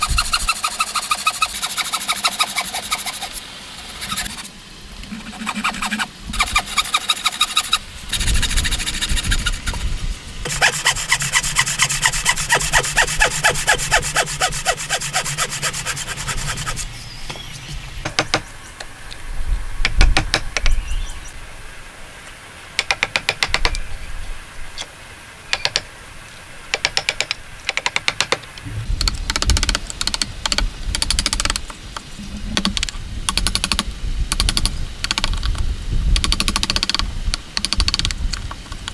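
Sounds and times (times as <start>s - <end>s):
saw cutting wood: 0.0s - 4.5s, 5.2s - 17.0s
chisel knocking wood: 18.0s - 18.4s, 26.7s - 28.4s.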